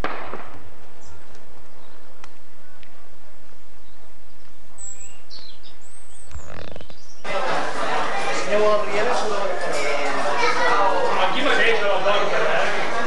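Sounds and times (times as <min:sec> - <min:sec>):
outdoor background noise: 0:00.0 - 0:13.0
high bird chirps: 0:04.8 - 0:07.3.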